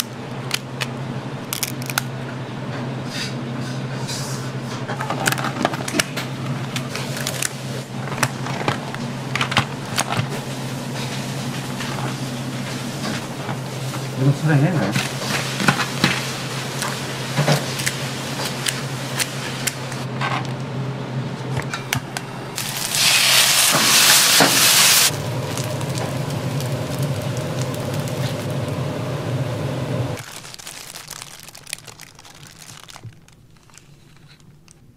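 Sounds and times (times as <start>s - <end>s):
steady hum: 6.0s - 30.2s
rice sizzling in a wok: 15.0s - 20.0s, 22.6s - 30.2s.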